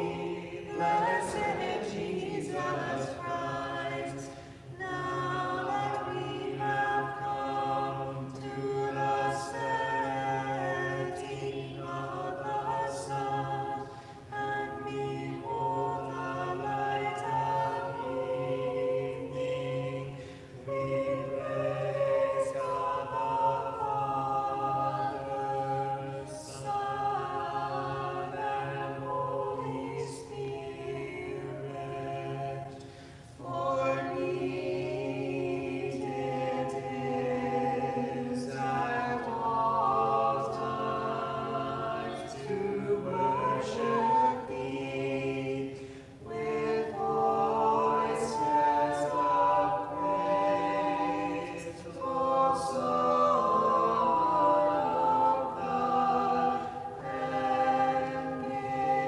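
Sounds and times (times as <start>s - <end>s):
choir singing a cappella hymn: 0.0s - 59.0s.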